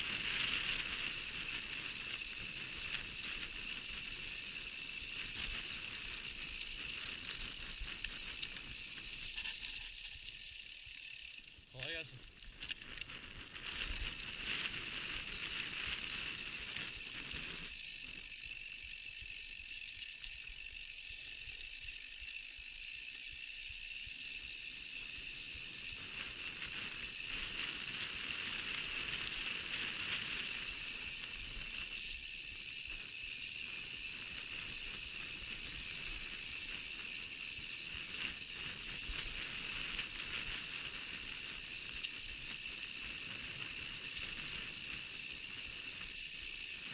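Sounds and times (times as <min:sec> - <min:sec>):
bike tyres on dirt track: 0:00.0 - 0:46.9.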